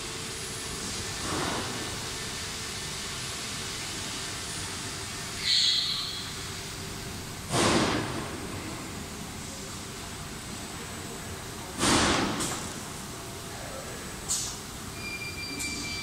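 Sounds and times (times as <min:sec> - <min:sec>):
machine-room noise: 0:00.0 - 0:16.0
high electronic beep: 0:15.0 - 0:16.0.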